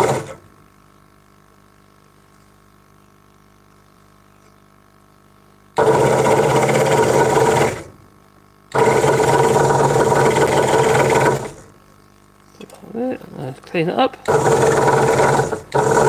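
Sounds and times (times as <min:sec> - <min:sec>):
scroll saw cutting wood: 0:00.0 - 0:00.4, 0:05.8 - 0:07.9, 0:08.7 - 0:11.7, 0:14.2 - 0:16.0.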